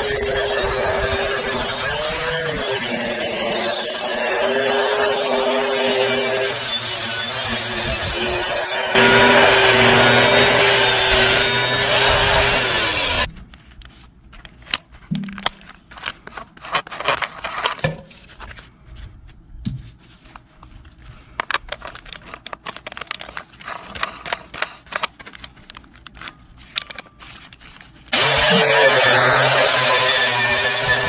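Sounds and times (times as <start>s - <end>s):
angle grinder whining: 0.0s - 13.3s, 28.1s - 31.0s
clicks and scrapes of tool handling: 20.4s - 28.1s.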